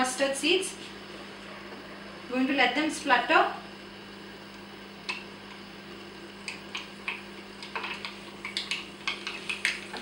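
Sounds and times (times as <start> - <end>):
mustard seeds popping in oil: 6.4 - 10.0.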